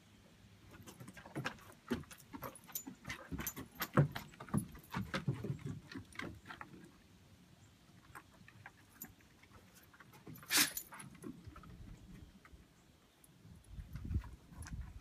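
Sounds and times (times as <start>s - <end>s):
collar tags jingling: 0.7s - 6.9s, 8.0s - 12.2s
dog claws clicking on wooden deck: 0.7s - 6.9s.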